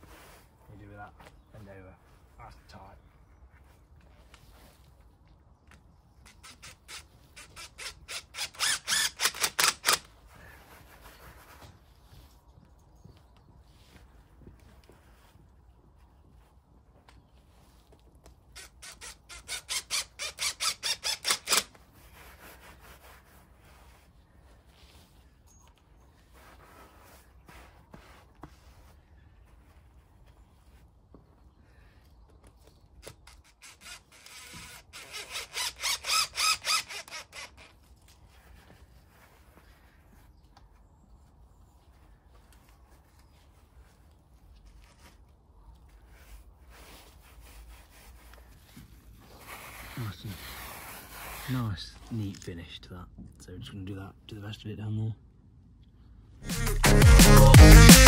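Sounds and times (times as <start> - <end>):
hands rustling artificial grass: 0.0 - 6.1, 10.1 - 18.5, 21.7 - 33.0, 37.6 - 52.6
cordless power driver bursts: 6.3 - 10.1, 18.6 - 21.7.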